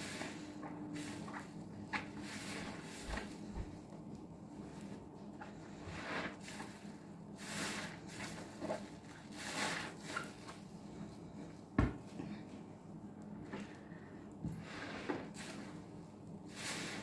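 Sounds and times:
wet foamy sponge squeezing: 0:05.6 - 0:10.6.

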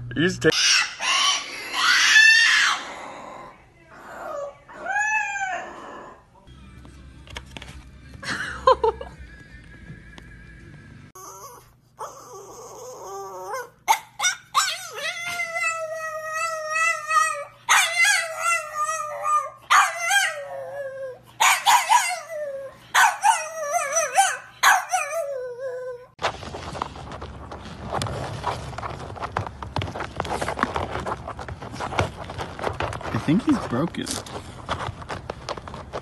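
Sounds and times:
dog yelping: 0:00.5 - 0:03.0, 0:11.2 - 0:26.2
dog howling: 0:04.1 - 0:06.3, 0:11.2 - 0:26.2.

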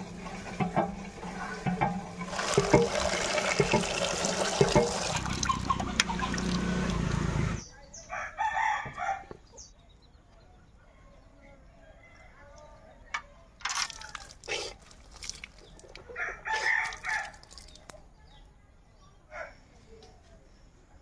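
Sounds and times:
water splashing into metal bucket: 0:00.0 - 0:07.0, 0:13.6 - 0:16.0, 0:16.6 - 0:17.9
rooster crowing: 0:08.1 - 0:09.4, 0:16.1 - 0:17.4.

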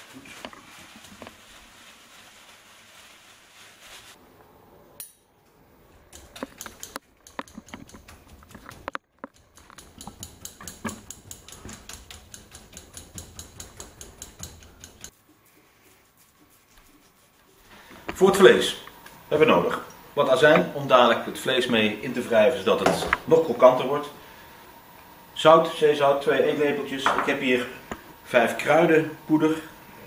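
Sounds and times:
paper towel rubbing: 0:00.0 - 0:04.2, 0:15.1 - 0:18.8.

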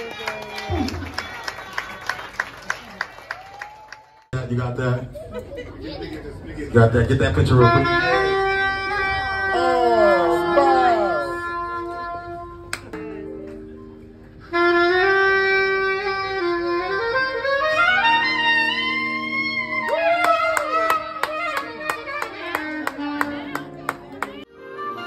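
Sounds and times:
alto saxophone: 0:07.4 - 0:13.0, 0:14.4 - 0:25.0
rhythmic handclaps: 0:12.7 - 0:13.0, 0:19.8 - 0:24.4.

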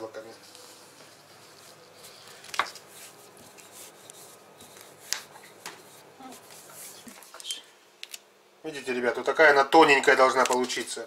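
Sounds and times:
rolling pin rubbing on dough: 0:02.8 - 0:07.2.

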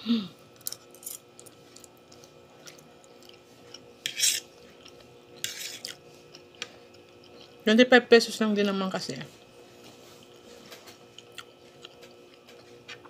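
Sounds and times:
wet chewing and mouth clicks: 0:11.1 - 0:13.0.

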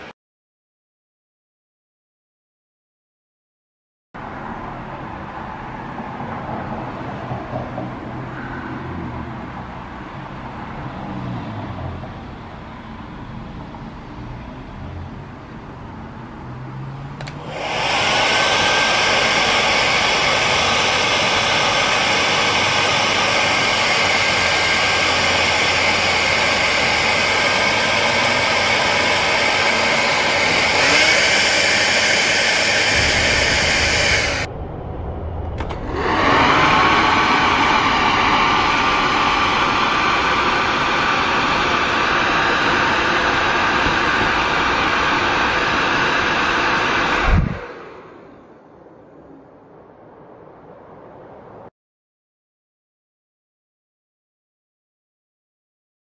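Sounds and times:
blower air rush with motor whine: 0:17.1 - 0:51.7
low rumble: 0:32.8 - 0:38.7.

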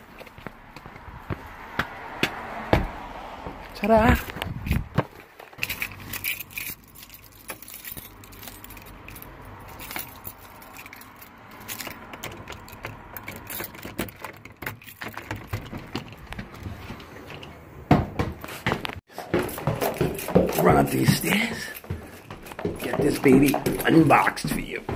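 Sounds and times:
keys jangling: 0:04.2 - 0:16.7, 0:19.2 - 0:24.9
door lock clicks and knocks: 0:11.9 - 0:16.5.

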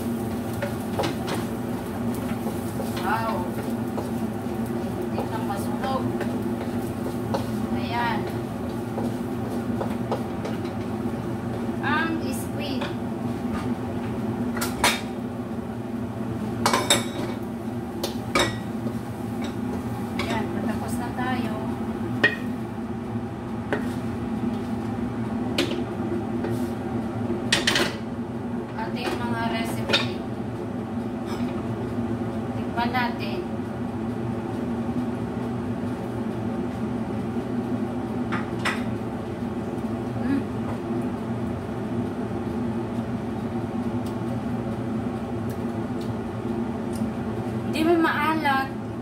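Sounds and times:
steady low hum: 0:00.0 - 0:49.0
wooden spatula scraping a wok: 0:02.1 - 0:04.2, 0:05.2 - 0:10.8, 0:23.8 - 0:24.1, 0:26.4 - 0:26.8.

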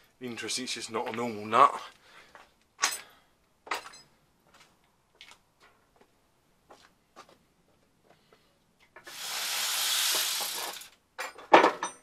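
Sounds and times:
hiss: 0:09.1 - 0:10.9.

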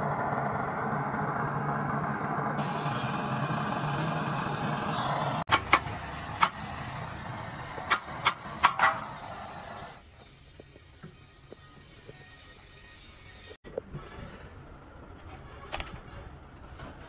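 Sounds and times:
gas torch flame hissing: 0:02.6 - 0:13.6.

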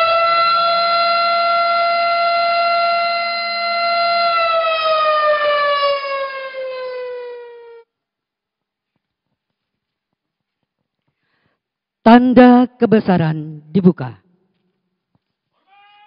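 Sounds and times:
siren winding down: 0:00.0 - 0:07.8.

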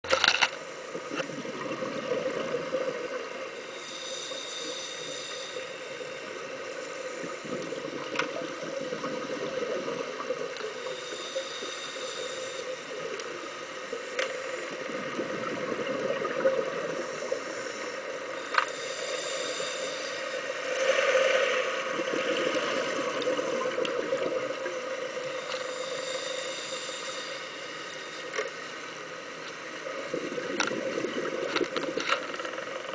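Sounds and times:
muffled underwater rumble: 0:00.7 - 0:03.9, 0:04.7 - 0:32.9
diver regulator inhalation hiss: 0:16.7 - 0:24.2, 0:25.2 - 0:29.0.

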